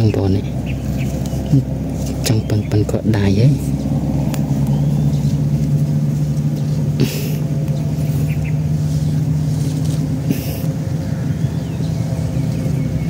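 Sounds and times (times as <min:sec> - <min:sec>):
low mechanical hum: 0:00.0 - 0:13.0
hands brushing dirt off roots: 0:00.8 - 0:02.2, 0:03.6 - 0:10.8.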